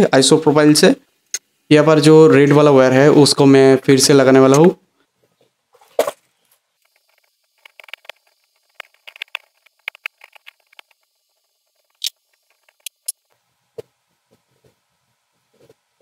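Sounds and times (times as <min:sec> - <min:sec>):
hand tools clicking and scratching: 0:06.8 - 0:13.2.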